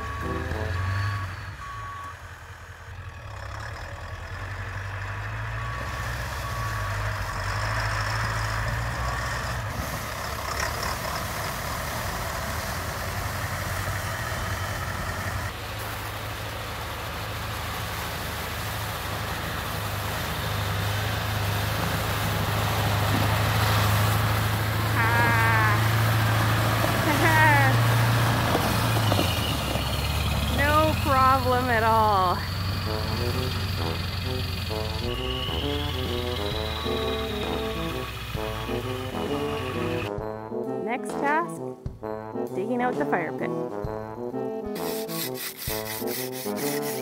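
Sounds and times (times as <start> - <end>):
truck engine droning: 0.0 - 47.0.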